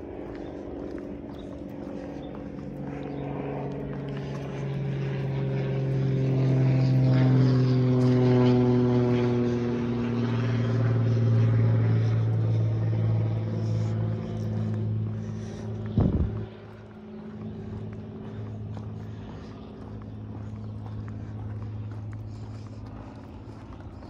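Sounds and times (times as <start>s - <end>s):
propeller aircraft droning overhead: 0.0s - 24.0s.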